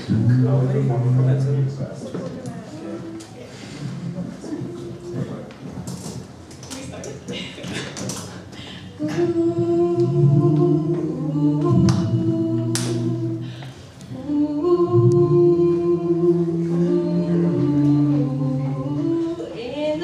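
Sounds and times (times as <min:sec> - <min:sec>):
group singing doo-wop harmony: 0:09.0 - 0:20.0.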